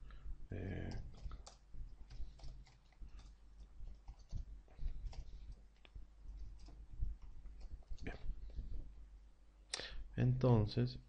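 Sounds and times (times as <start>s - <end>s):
low steady hum: 0.0s - 11.0s
computer keys and mouse clicks: 0.8s - 8.2s.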